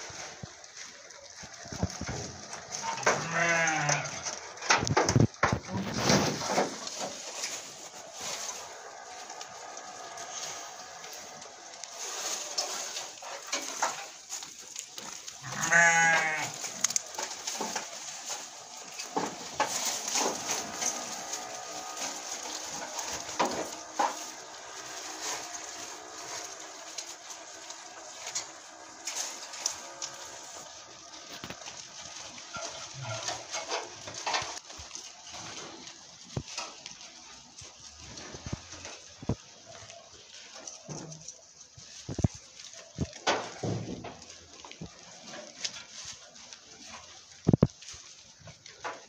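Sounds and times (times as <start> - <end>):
hay rustling: 0.0 - 49.0
goat bleating: 1.8 - 4.6, 15.4 - 28.6.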